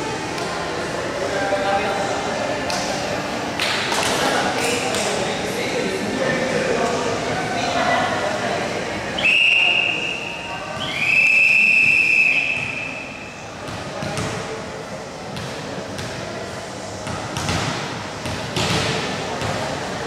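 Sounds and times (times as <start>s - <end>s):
voices echoing in gym: 0.0s - 20.0s
referee's whistle blast: 9.2s - 13.2s.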